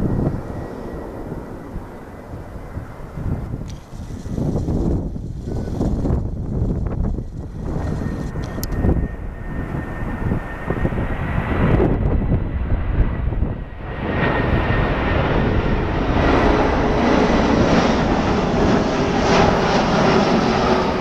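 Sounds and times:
jet airliner flying overhead: 0.0s - 21.0s.

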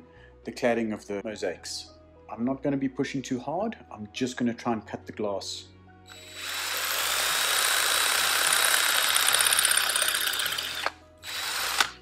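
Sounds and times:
drill grinding into glass tile: 6.1s - 12.0s.

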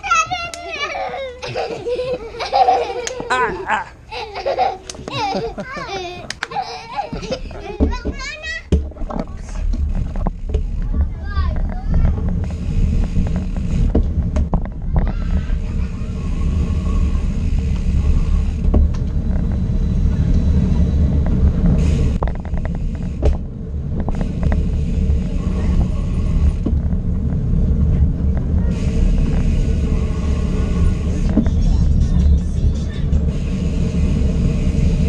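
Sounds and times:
bike rattling over pavement: 6.5s - 35.0s
wind buffeting microphone: 7.1s - 35.0s.

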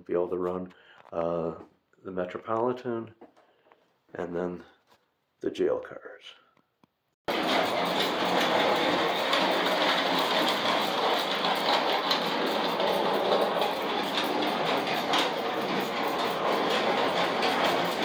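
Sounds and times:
small clicks of wheels on track: 7.3s - 18.0s
toy trolley motor whirring: 7.3s - 18.0s.

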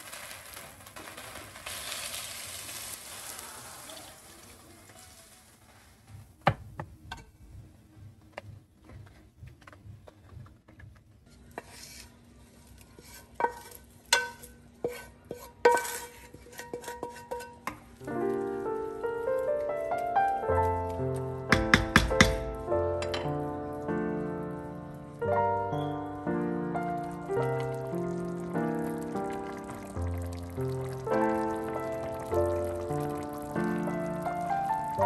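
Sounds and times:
water sizzling in hot pot: 0.0s - 6.1s, 26.8s - 35.0s
spatula clinking against pans: 13.4s - 17.8s.

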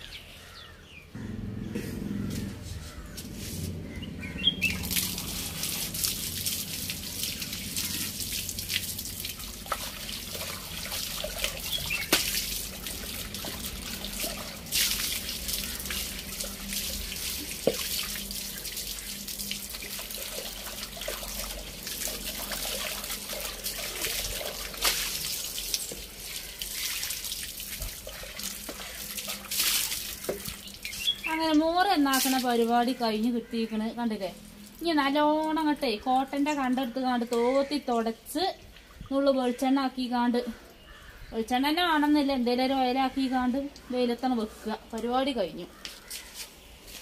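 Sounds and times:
water splashing: 1.5s - 33.0s
water running from tap: 4.5s - 33.0s.

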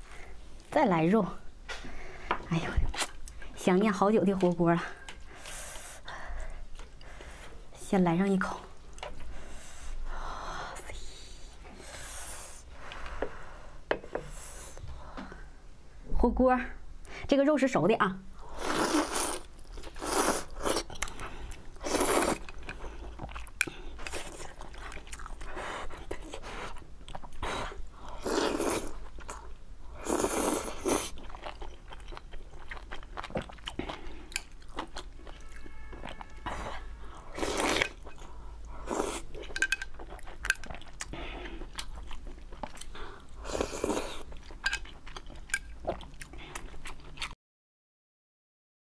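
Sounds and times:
chewing: 18.8s - 29.5s, 30.1s - 47.4s
slurping noodles: 21.8s - 22.5s.

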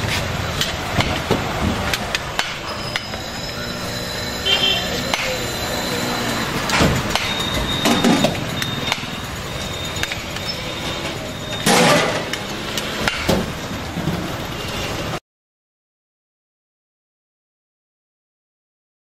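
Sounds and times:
passing traffic: 0.0s - 15.2s.

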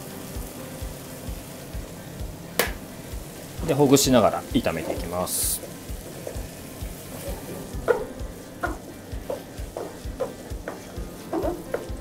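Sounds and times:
quiet sizzle: 0.0s - 12.0s
wooden spatula scraping a pan: 4.7s - 12.0s.

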